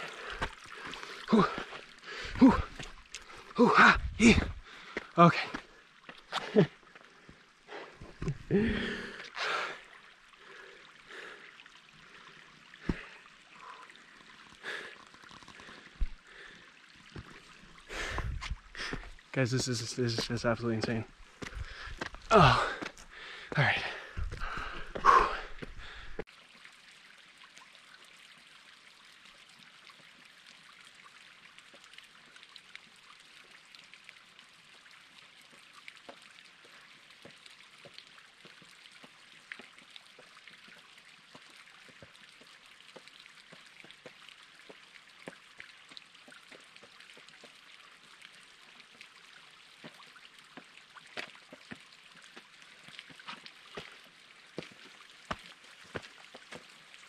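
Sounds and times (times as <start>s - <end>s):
distant running water: 0.0s - 57.0s
boots scraping on rock: 20.1s - 23.1s.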